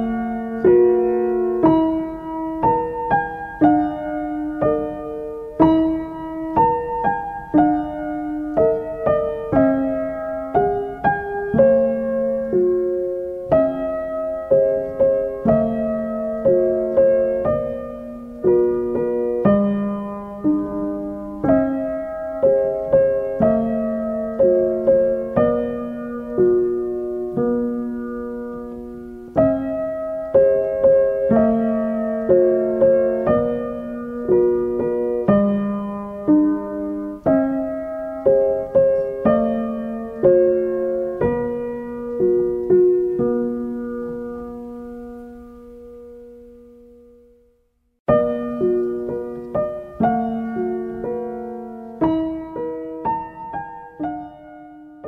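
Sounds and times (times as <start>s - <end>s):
gentle piano melody: 0.0s - 55.0s.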